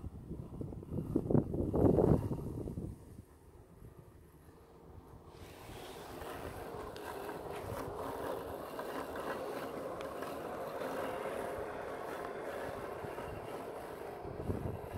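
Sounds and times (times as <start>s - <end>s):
robotic lawnmower humming: 4.6s - 14.9s.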